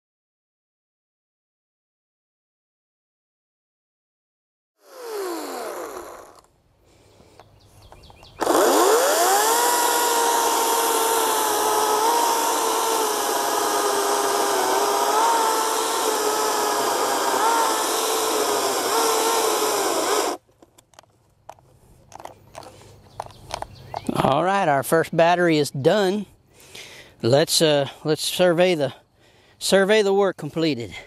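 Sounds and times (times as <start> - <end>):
battery chainsaw cutting log: 4.8 - 6.5, 8.3 - 20.4.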